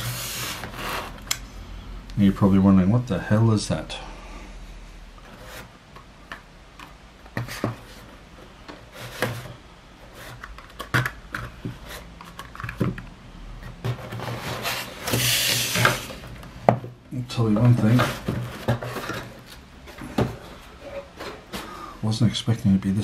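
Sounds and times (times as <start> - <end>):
cardboard rubbing and scraping: 0.0 - 1.2, 13.8 - 16.3
cardboard rustle: 13.8 - 16.3, 17.6 - 21.8.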